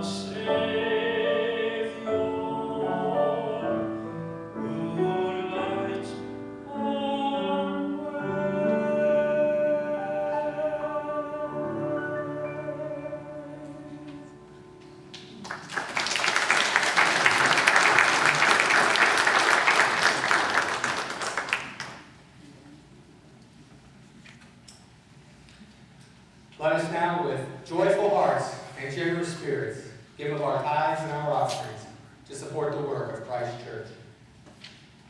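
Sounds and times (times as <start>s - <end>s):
person singing: 0.0s - 14.9s
piano chords: 0.0s - 15.9s
people applauding: 15.1s - 22.1s.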